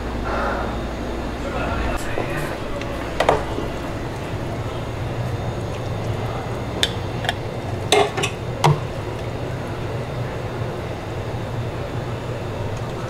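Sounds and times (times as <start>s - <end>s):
low hum of kitchen machinery: 0.0s - 13.0s
dishes and utensils clinking: 6.8s - 8.8s.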